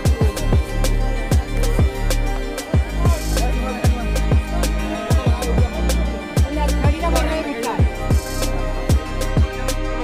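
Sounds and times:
sustained bass line: 0.0s - 10.0s
bass kick drums: 0.1s - 2.0s, 7.8s - 9.6s.

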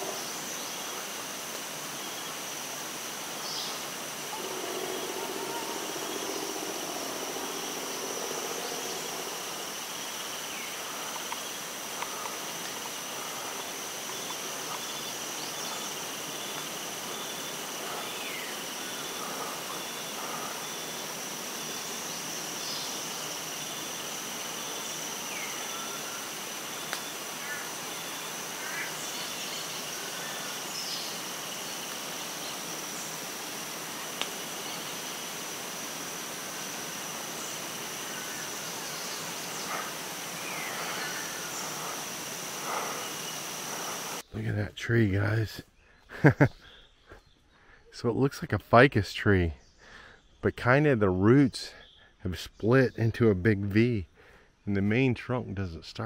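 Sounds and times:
high-pitched insect drone: 0.0s - 44.3s
pulsing insect chirp: 0.0s - 44.6s.

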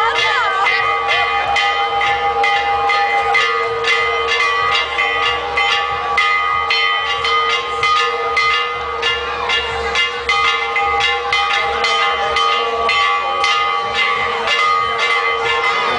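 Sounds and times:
church bells ringing: 0.0s - 15.9s.

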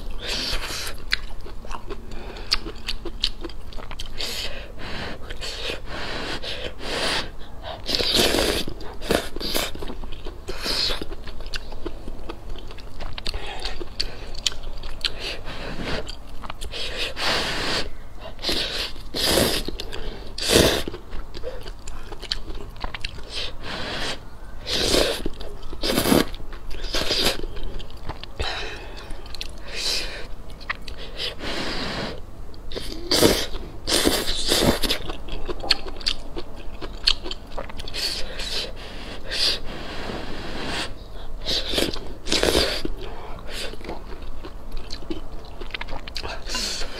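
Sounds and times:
wet chewing: 0.0s - 4.6s, 7.4s - 17.2s, 17.8s - 23.6s, 24.7s - 31.4s, 32.6s - 39.6s, 41.2s - 46.9s
person slurping noodles: 4.2s - 9.8s, 16.7s - 19.8s, 20.4s - 20.9s.

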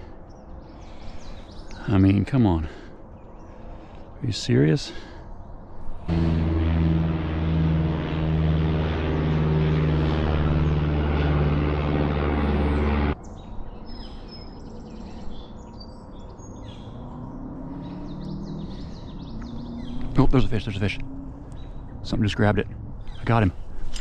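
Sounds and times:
engine drone: 5.8s - 13.2s, 16.7s - 24.0s
birds chirping and whistling: 12.6s - 22.2s.

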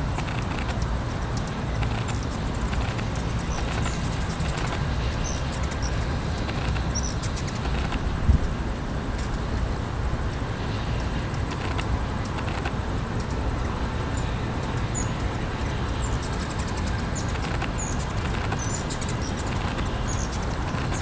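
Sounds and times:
low background rumble: 0.0s - 21.0s
hummingbird chip calls: 1.6s - 8.0s, 14.1s - 21.0s.

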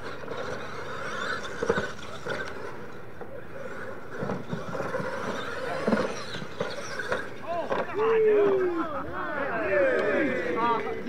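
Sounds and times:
toy truck motors running: 0.0s - 8.8s
tyres churning over dirt: 0.0s - 11.0s.

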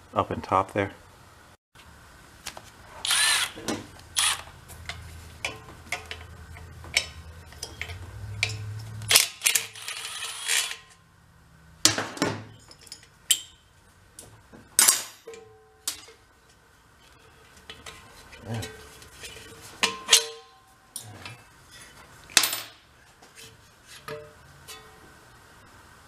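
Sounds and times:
cordless power tool running: 3.0s - 3.5s
sharp clicks and metal clatter: 3.7s - 11.0s.

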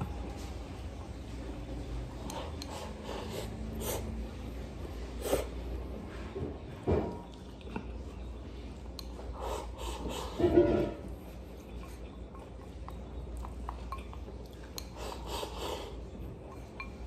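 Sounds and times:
low steady hum: 0.0s - 17.0s
breaths through the nose: 2.3s - 4.2s.

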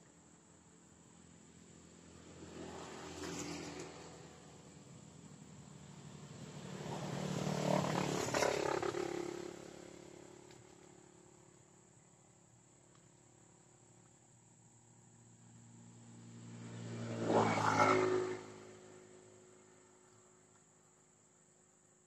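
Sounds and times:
passing vehicle engine: 1.2s - 12.1s, 15.1s - 20.6s.

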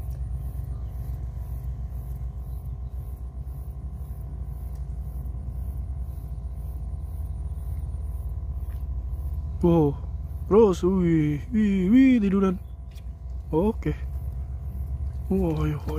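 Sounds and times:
faint tonal hum: 0.0s - 15.9s
low rumble: 0.0s - 15.9s.

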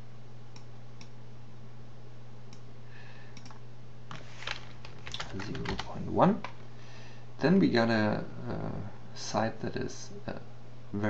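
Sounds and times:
low electrical hum: 0.0s - 11.0s
keyboard typing: 3.4s - 6.6s.

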